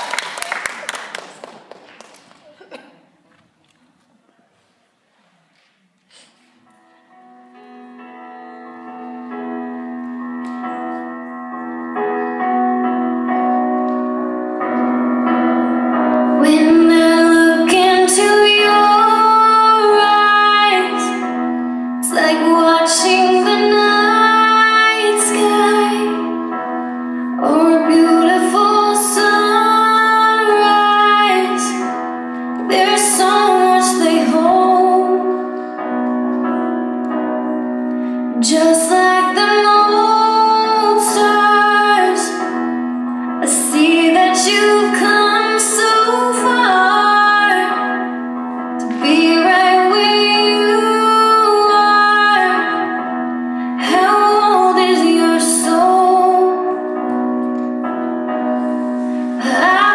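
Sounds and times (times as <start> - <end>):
piano ballad: 6.2 - 59.9
woman singing: 16.1 - 35.9, 38.4 - 57.4, 59.4 - 59.9.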